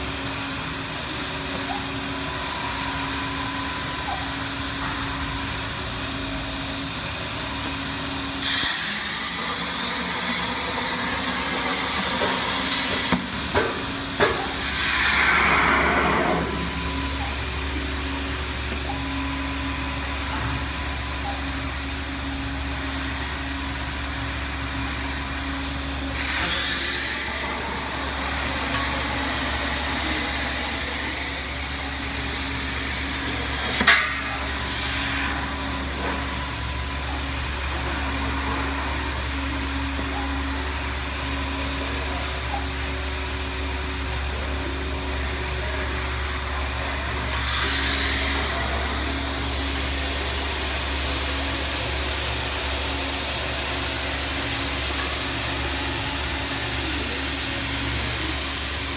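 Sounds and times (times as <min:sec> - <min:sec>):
steady machine hum: 0:00.0 - 0:58.9
plasma cutter hissing: 0:08.4 - 0:36.8, 0:47.4 - 0:58.9.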